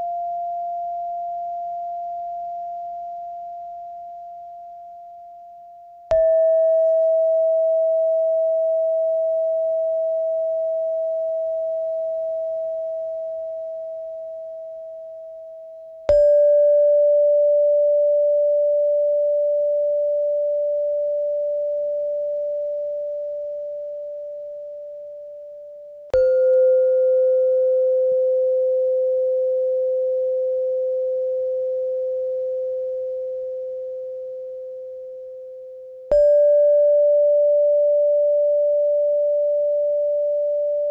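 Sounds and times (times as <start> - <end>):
metal meditation chime ringing: 6.1 - 24.5.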